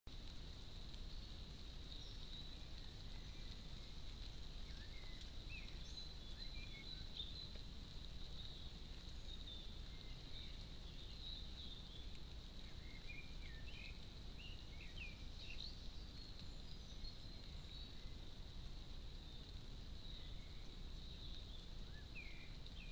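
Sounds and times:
small birds chirping: 0.1s - 22.9s
steady low hiss: 0.1s - 22.9s.

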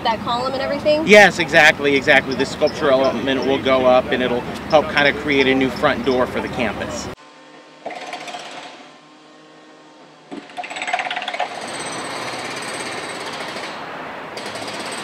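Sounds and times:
power hammer hammering rapidly: 14.4s - 15.0s.

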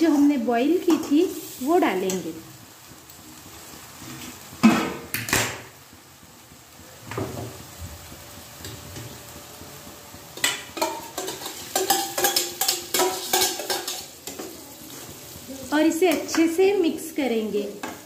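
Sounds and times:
metal utensils clanking in a pan: 10.4s - 16.8s.

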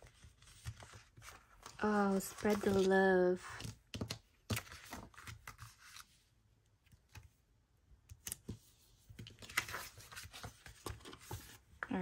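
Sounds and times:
paper rustle: 0.0s - 6.2s, 8.2s - 12.0s.

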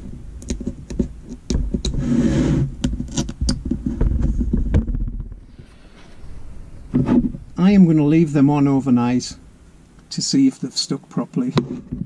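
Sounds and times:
plastic rubbing on a table: 0.0s - 6.2s, 6.9s - 7.5s.

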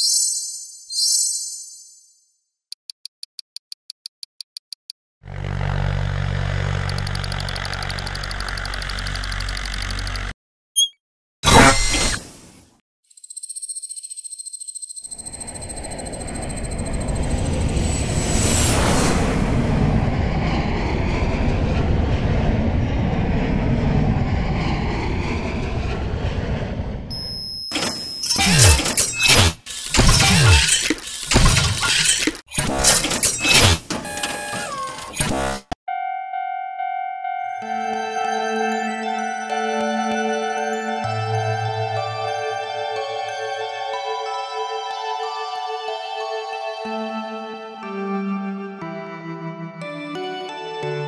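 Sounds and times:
passing vehicle roaring: 5.2s - 9.5s, 15.5s - 27.2s
quick mechanical clicks: 6.8s - 10.3s, 27.8s - 33.9s.

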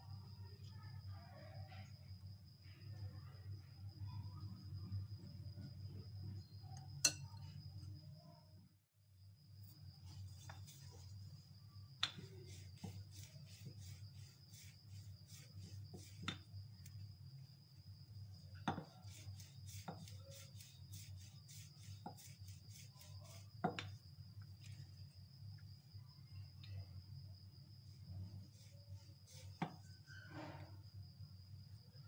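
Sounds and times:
rolling pin rubbing: 10.0s - 17.0s, 18.2s - 24.0s, 27.8s - 30.7s
rolling pin knocking counter: 18.6s - 19.2s.

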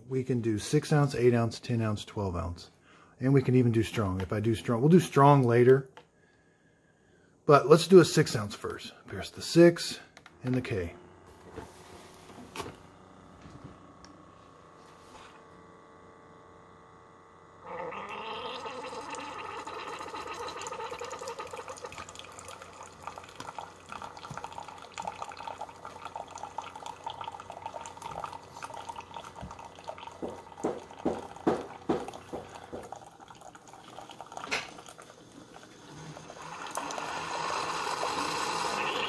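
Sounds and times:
coffee brewer pumping water: 10.5s - 39.0s
coffee pouring into mug: 17.7s - 39.0s.

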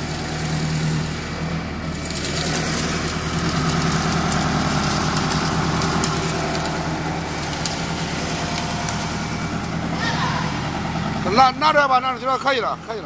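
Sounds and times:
wood shaving machine running: 0.0s - 13.0s.

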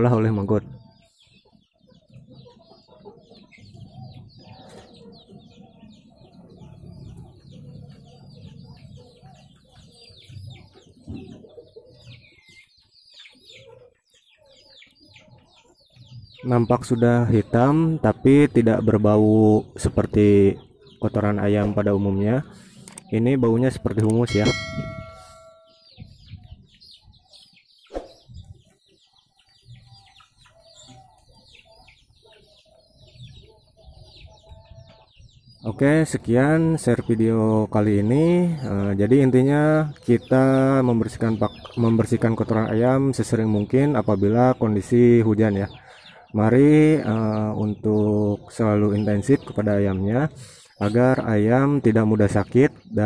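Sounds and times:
chicks peeping and clucking: 0.0s - 53.0s
ringing tone: 24.3s - 26.0s.

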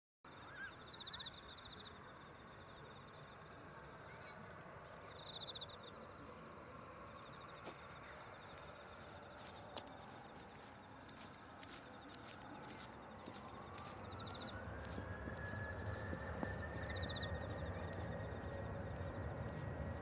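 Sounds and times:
faint low rumble: 1.2s - 20.0s
insects trilling: 15.5s - 20.0s.

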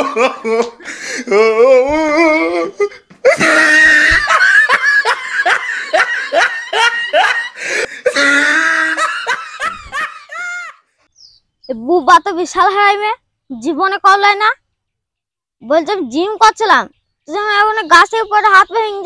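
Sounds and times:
person laughing hard: 0.0s - 10.8s.

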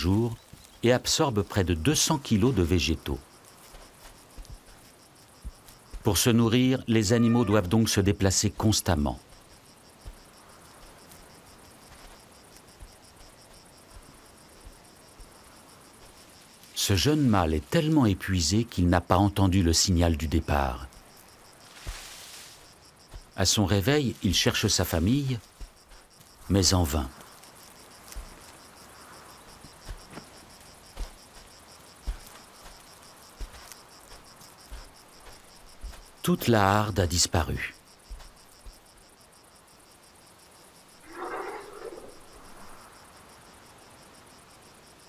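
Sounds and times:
insects chirping: 0.0s - 45.0s
soft low thumps: 3.8s - 6.2s.

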